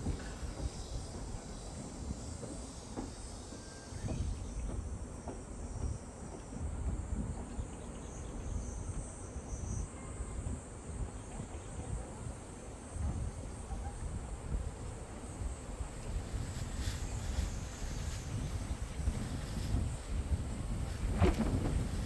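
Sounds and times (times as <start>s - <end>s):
insects chorus: 0.0s - 22.0s
wind gusting on microphone: 9.7s - 22.0s.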